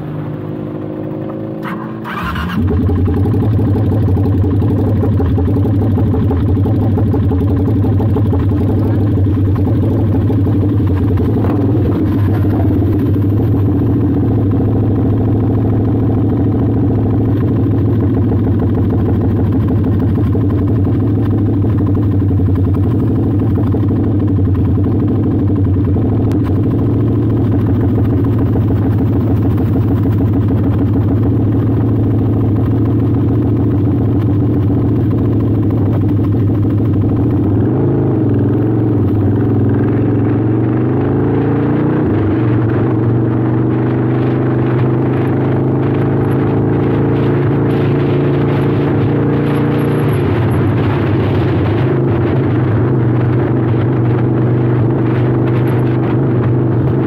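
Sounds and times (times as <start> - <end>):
motorbike engine idling: 1.4 - 37.6.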